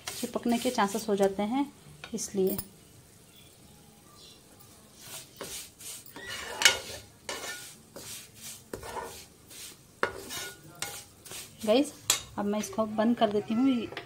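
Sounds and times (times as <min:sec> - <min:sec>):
metal spoon scraping a pot: 0:00.0 - 0:01.1, 0:05.0 - 0:12.9.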